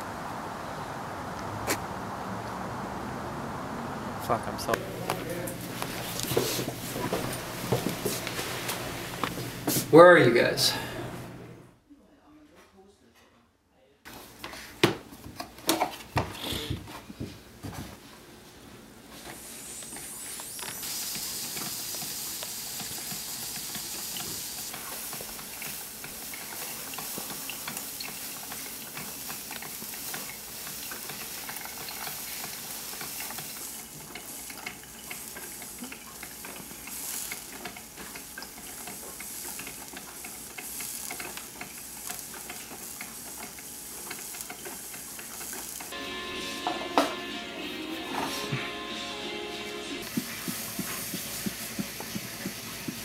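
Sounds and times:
coffee maker brewing hiss: 0:04.7 - 0:11.6, 0:18.6 - 0:53.0.

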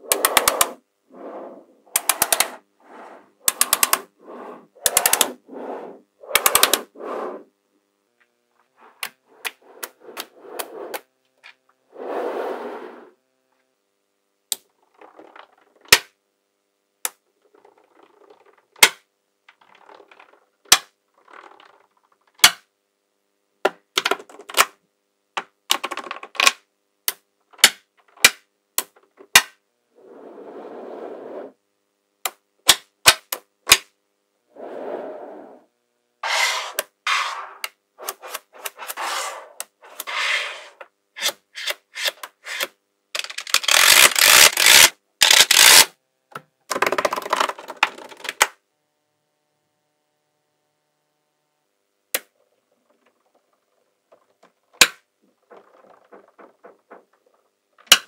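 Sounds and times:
magnetic balls snapping together: 0:00.0 - 0:00.8, 0:01.9 - 0:02.6, 0:03.4 - 0:04.1, 0:04.8 - 0:05.4, 0:06.2 - 0:06.9, 0:09.0 - 0:11.6, 0:22.4 - 0:22.6, 0:25.4 - 0:29.6, 0:32.2 - 0:33.9, 0:54.4 - 0:58.0
balls rustling and scraping: 0:00.0 - 0:07.5, 0:08.6 - 0:13.2, 0:30.0 - 0:31.6, 0:34.5 - 0:45.8, 0:52.6 - 0:58.0
dense clatter of balls: 0:52.8 - 0:57.5.

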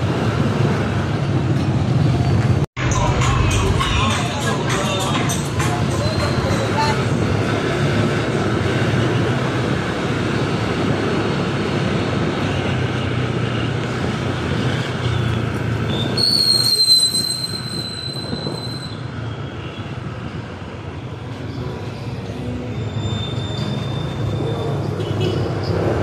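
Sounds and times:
road and wind noise: 0:00.0 - 0:26.0
high steady squeal: 0:15.9 - 0:19.6.

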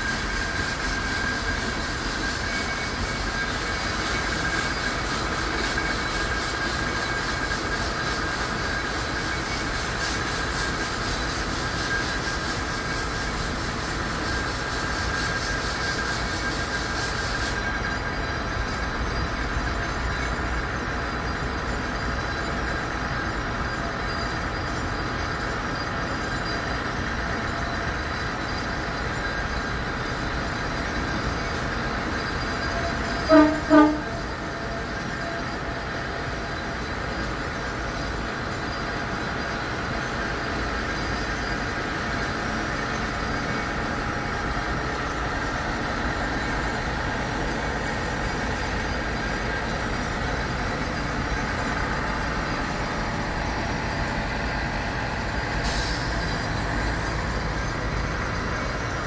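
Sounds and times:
steam hissing from locomotive: 0:00.0 - 0:59.0
thin high tone: 0:31.0 - 0:35.6.

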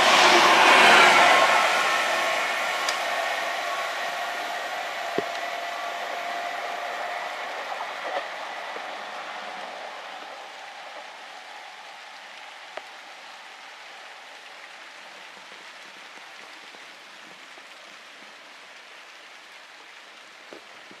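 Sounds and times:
passing train: 0:00.0 - 0:13.3
steady rain falling: 0:00.0 - 0:21.0.

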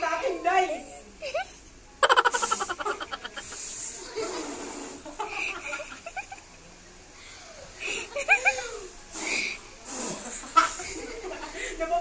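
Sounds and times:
girls laughing: 0:01.2 - 0:06.7, 0:07.8 - 0:08.9, 0:10.2 - 0:11.6.

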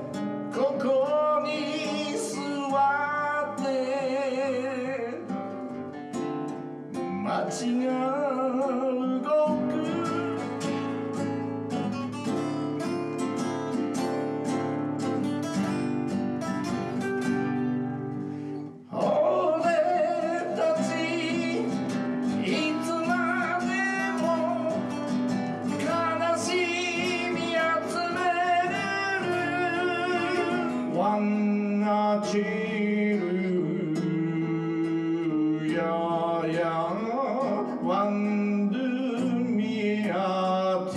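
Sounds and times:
man singing: 0:00.0 - 0:05.8, 0:07.0 - 0:11.3, 0:18.8 - 0:40.9
acoustic guitar: 0:00.0 - 0:40.9.

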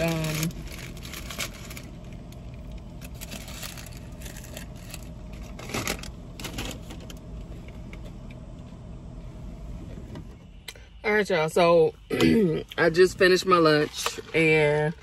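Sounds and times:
food wrappers rustling: 0:00.0 - 0:07.1
steady low rumble: 0:00.0 - 0:15.0.

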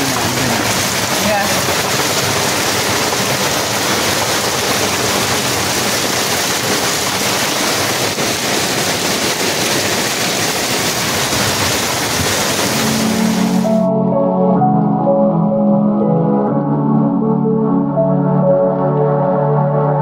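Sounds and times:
heavy rain on a boat deck: 0:00.0 - 0:13.9.

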